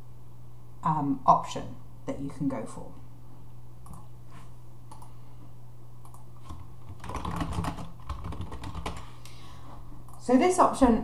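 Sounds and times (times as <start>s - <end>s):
keyboard typing: 6.0s - 9.1s.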